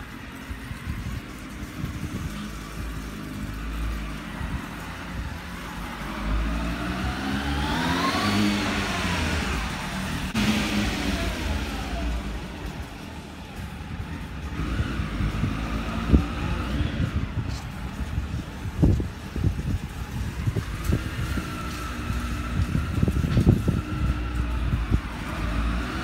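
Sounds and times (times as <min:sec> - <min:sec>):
motorcycle engine passing: 0:06.0 - 0:26.0.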